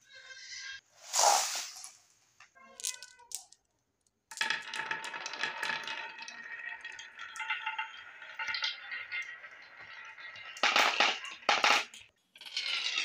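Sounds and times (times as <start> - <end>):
marbles rattling down wooden track: 4.3 - 13.0.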